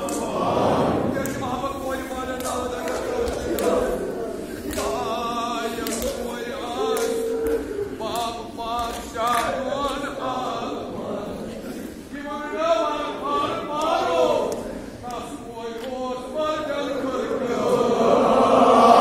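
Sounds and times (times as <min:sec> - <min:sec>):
men chanting together: 0:00.0 - 0:19.0.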